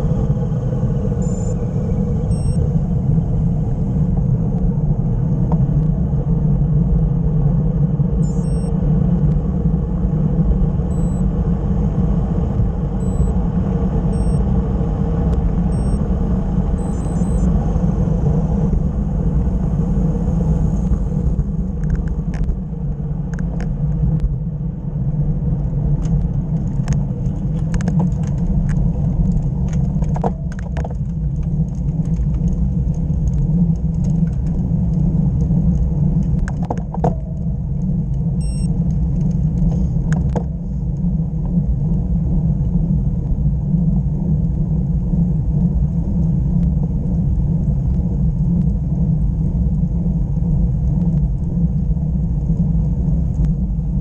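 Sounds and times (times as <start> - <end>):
tyre and road noise: 0.0 - 54.0
wind buffeting microphone: 0.0 - 54.0
bike clicks and rattles: 26.1 - 37.4.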